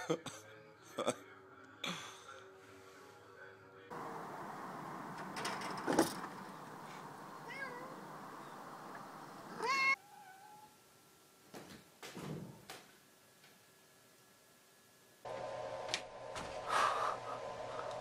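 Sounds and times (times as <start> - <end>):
cat meowing: 7.4 - 8.1, 9.5 - 10.8.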